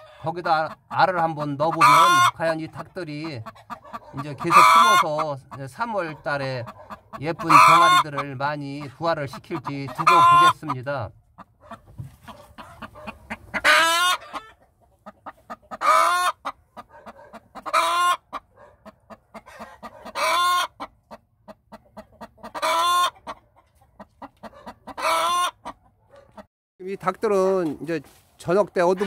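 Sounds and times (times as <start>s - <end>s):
hen drawn-out calls: 0.0s - 26.5s
hen soft clucking: 0.0s - 29.0s.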